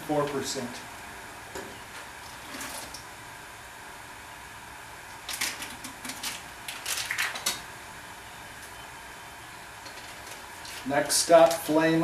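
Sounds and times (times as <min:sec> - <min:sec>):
plastic bag crinkling: 0:05.3 - 0:07.6.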